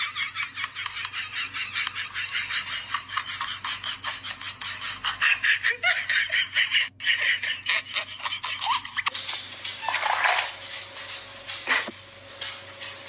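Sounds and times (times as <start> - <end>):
person laughing breathily: 11.7 - 11.9.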